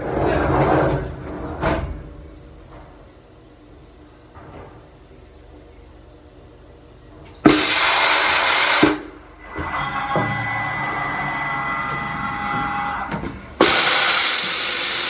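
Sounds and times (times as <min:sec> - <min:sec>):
steady machine whine: 0:06.0 - 0:15.0
loud hiss: 0:07.5 - 0:09.2, 0:13.5 - 0:15.0.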